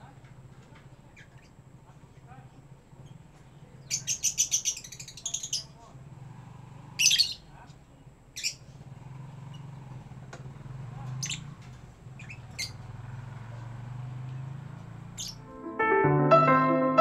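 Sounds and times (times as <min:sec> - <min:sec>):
lovebirds chirping: 0:01.0 - 0:05.9, 0:06.9 - 0:08.8, 0:11.1 - 0:15.5.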